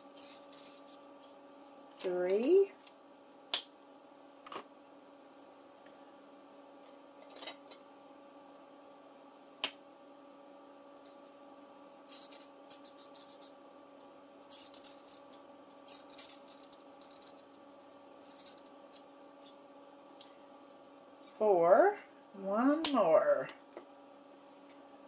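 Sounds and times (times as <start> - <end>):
marker pen scratching paper: 0.0 - 1.0, 12.1 - 13.6, 14.4 - 17.5, 18.2 - 19.6
faint steady hum: 0.0 - 25.0.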